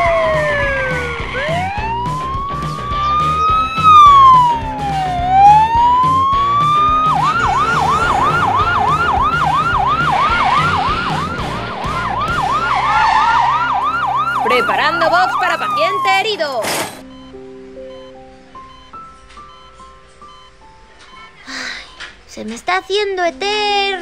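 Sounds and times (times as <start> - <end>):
ambulance siren wailing and yelping: 0.0 - 16.7.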